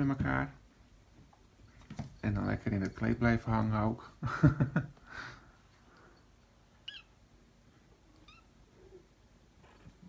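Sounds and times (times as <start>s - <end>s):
kitten squeak: 6.8s - 7.2s, 8.2s - 8.5s.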